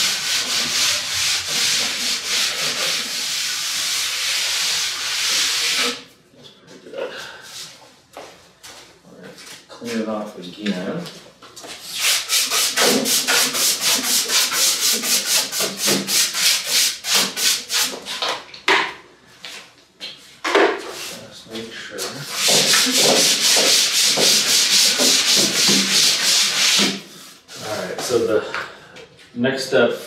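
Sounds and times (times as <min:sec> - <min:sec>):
cloth wiping wood: 0:00.0 - 0:06.0, 0:22.2 - 0:28.2.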